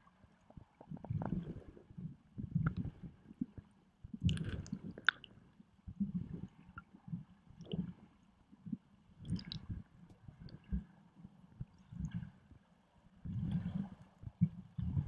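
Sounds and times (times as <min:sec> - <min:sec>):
underwater river sloshing: 0:00.0 - 0:15.0
bubble clicks: 0:04.2 - 0:05.3.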